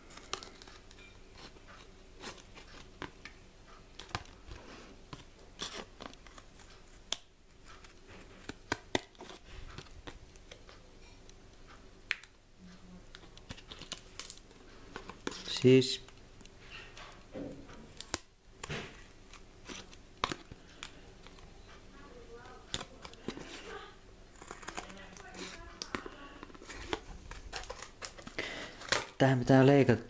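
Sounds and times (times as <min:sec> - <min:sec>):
scissors cutting packaging: 0:00.0 - 0:03.3, 0:05.1 - 0:10.8, 0:13.1 - 0:16.2, 0:17.7 - 0:21.4, 0:22.5 - 0:29.2
packaging crinkling: 0:00.0 - 0:04.5, 0:13.2 - 0:16.5, 0:22.6 - 0:29.4.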